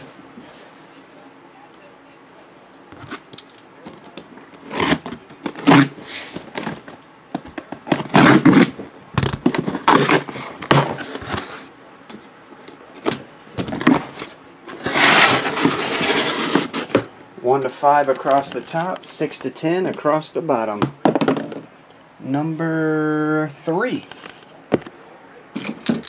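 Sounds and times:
packing tape tearing: 0:03.0 - 0:11.6, 0:13.0 - 0:17.0
cardboard ripping: 0:04.6 - 0:06.8, 0:07.8 - 0:11.5, 0:13.8 - 0:17.0
cardboard flaps scraping: 0:13.8 - 0:17.1.

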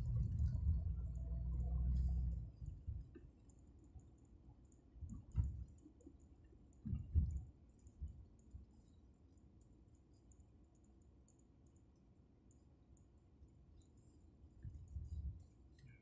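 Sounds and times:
car driving rumble: 0:00.0 - 0:03.0
faint rapid clicking: 0:00.0 - 0:16.0.

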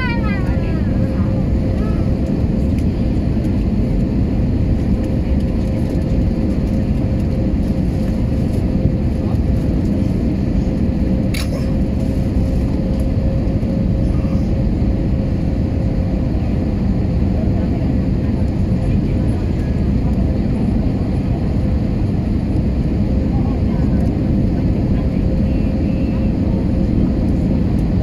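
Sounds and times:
engine and airflow rumble: 0:00.0 - 0:28.0.

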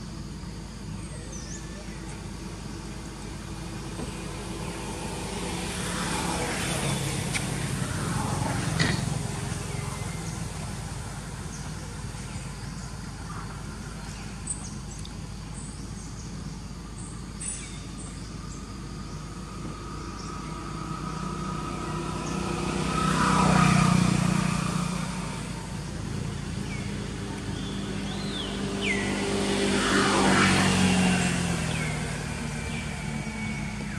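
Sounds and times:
steady outdoor hum: 0:00.0 - 0:33.9
motor vehicle passing: 0:03.5 - 0:14.2, 0:18.4 - 0:33.9.

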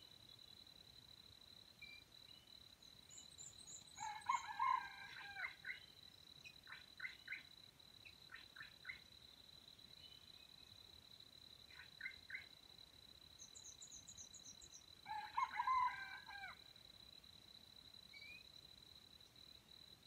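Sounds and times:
rooster crowing: 0:04.0 - 0:05.6, 0:15.1 - 0:16.6
small bird chirping: 0:13.4 - 0:14.9.

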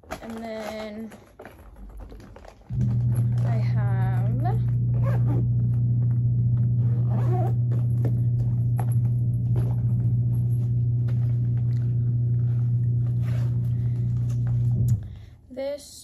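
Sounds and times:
loud low hum: 0:02.7 - 0:15.3.

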